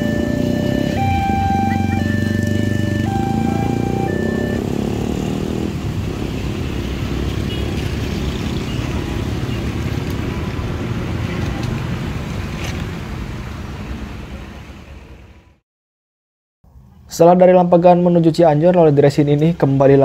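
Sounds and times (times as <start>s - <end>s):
vehicle engines rumbling: 0.0s - 15.6s.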